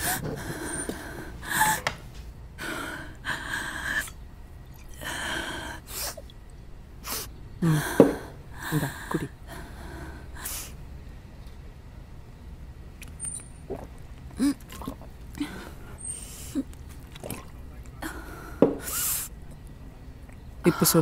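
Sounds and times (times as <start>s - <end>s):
woman crying: 1.4s - 1.9s, 8.6s - 9.7s.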